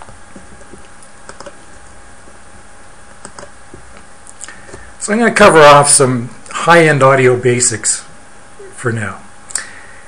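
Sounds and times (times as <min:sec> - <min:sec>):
low background hum: 0:00.0 - 0:10.0
keyboard and mouse clicks: 0:00.3 - 0:01.6, 0:03.2 - 0:03.5.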